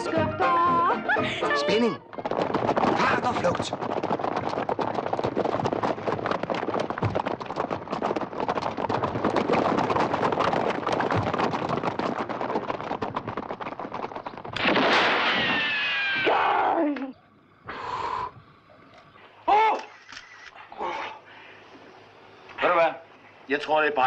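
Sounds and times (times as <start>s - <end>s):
galloping hoofbeats: 0.0s - 14.6s
sharp cracks: 2.1s - 17.1s.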